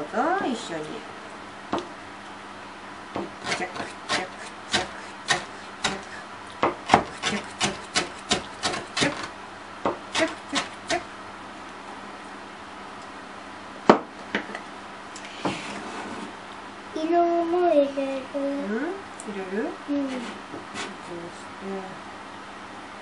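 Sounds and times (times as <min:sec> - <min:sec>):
knife chopping on plastic board: 0:03.2 - 0:09.3.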